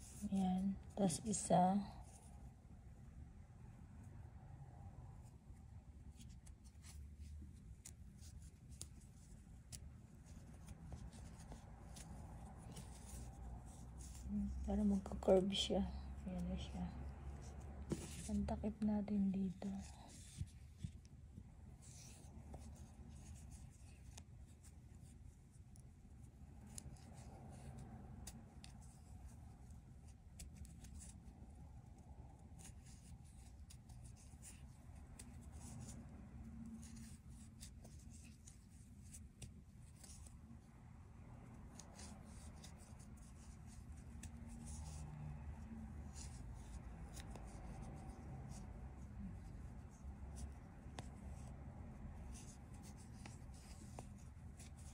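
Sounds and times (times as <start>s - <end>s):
crochet hook scratching yarn: 0.0s - 2.6s, 5.2s - 54.9s.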